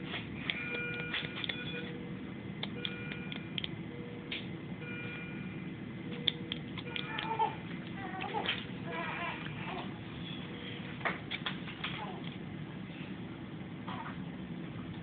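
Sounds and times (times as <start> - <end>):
equipment hum: 0.0 - 15.0
high electronic beeps: 0.6 - 2.0, 2.7 - 4.1.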